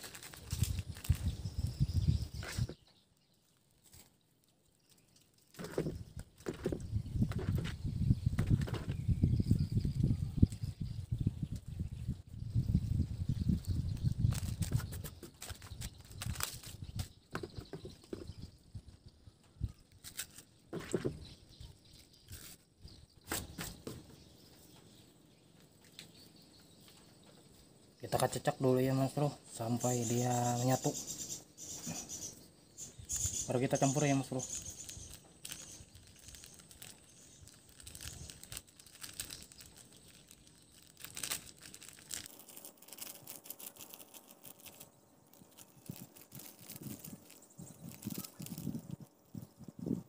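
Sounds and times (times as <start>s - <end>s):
plastic packets rustling: 0.0s - 1.8s, 13.9s - 18.2s, 33.1s - 49.5s
plastic sachet crinkling: 0.0s - 7.7s, 13.6s - 18.2s, 19.9s - 24.0s, 33.0s - 49.7s.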